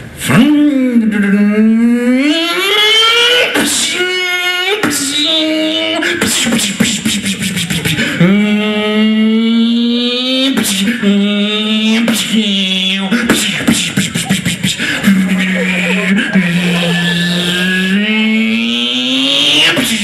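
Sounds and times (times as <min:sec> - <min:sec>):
man imitating racing car engine: 0:00.3 - 0:20.0.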